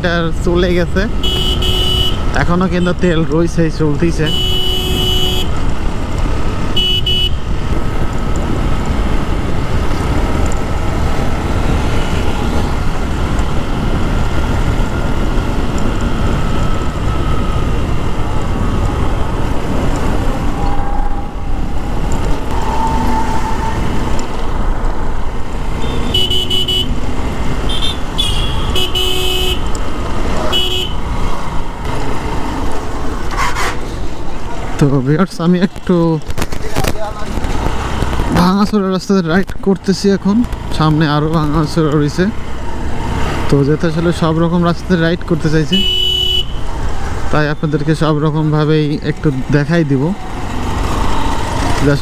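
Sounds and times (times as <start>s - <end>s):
wind and road noise: 0.0s - 52.0s
vehicle horn honks: 1.2s - 2.2s, 4.3s - 5.5s, 6.8s - 7.4s, 25.8s - 27.0s, 27.7s - 29.7s, 30.5s - 31.0s, 45.8s - 46.6s.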